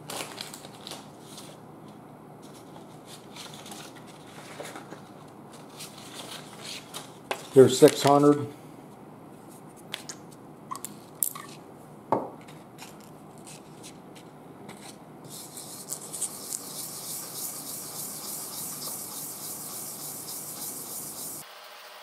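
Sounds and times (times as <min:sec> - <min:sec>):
metal rubbing on wet sandpaper: 0:15.3 - 0:21.4.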